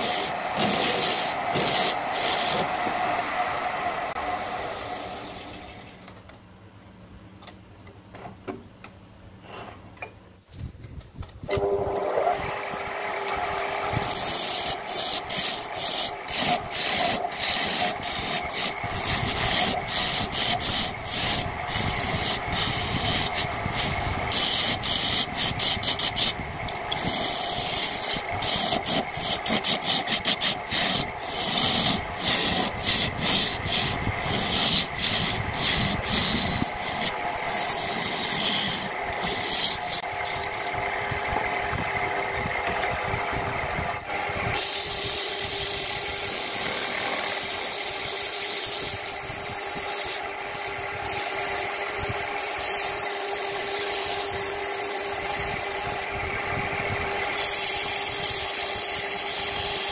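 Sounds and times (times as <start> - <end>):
turning tool scraping wood: 0.0 - 3.4, 4.1 - 6.0, 13.3 - 40.8, 44.5 - 56.1, 57.2 - 59.9
wood lathe humming: 0.0 - 6.1, 11.5 - 59.9.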